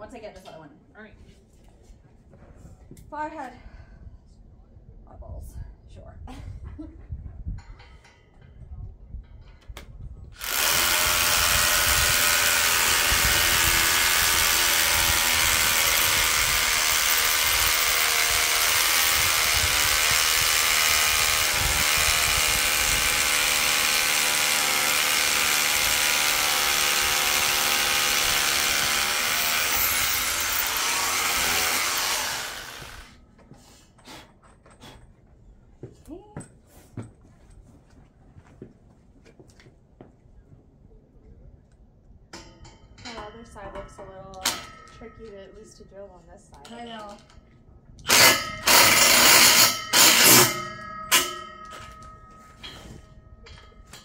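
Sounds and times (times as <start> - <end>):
hammer drill boring into concrete: 10.4 - 33.2, 48.0 - 51.3.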